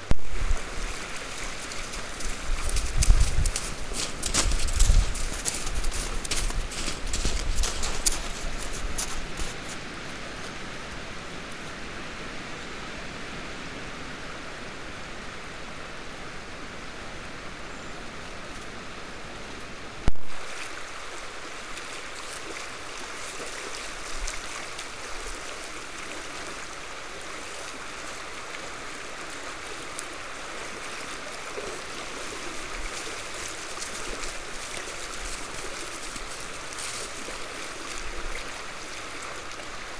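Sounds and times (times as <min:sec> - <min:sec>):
shallow stream flowing: 0:00.0 - 0:39.9
deer splashing through water: 0:00.6 - 0:09.8, 0:20.4 - 0:39.9.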